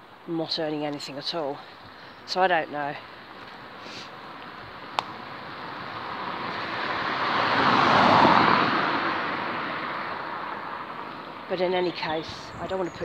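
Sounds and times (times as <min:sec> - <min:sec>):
car passing: 0:03.0 - 0:13.0.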